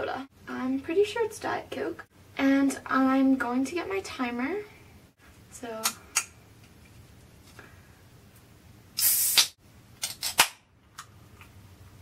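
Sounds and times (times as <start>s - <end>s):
fizzing hiss from can: 9.0s - 9.6s.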